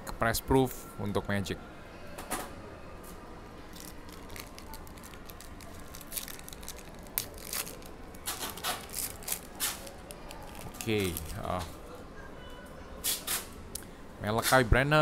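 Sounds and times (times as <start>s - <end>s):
wrapper crinkling and tearing: 3.7s - 11.6s
cards being handled: 3.7s - 11.7s.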